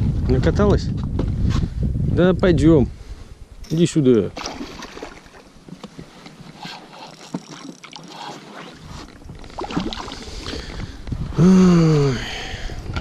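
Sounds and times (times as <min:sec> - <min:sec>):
water splashing against boat: 0:04.4 - 0:11.0.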